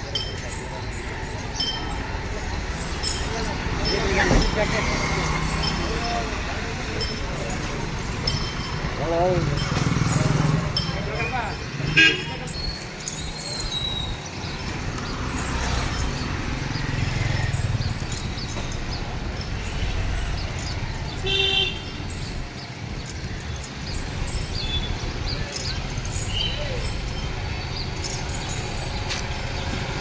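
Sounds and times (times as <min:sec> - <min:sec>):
birds chirping: 0:00.0 - 0:30.0
road traffic: 0:00.0 - 0:30.0
vehicle horn toot: 0:11.9 - 0:12.4.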